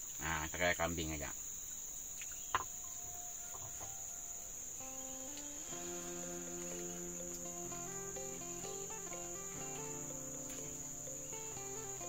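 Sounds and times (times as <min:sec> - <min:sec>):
insects droning: 0:00.0 - 0:12.0
music with slow held notes: 0:04.8 - 0:12.0.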